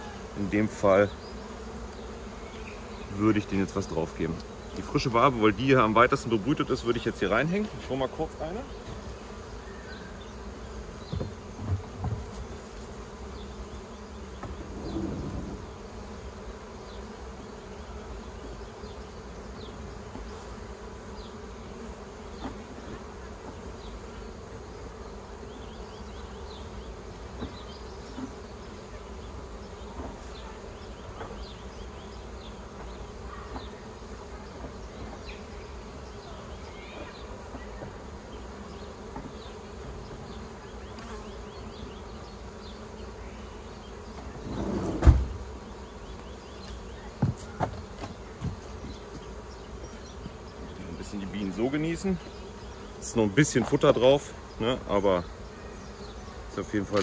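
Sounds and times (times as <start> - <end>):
bees buzzing: 0.0 - 57.0.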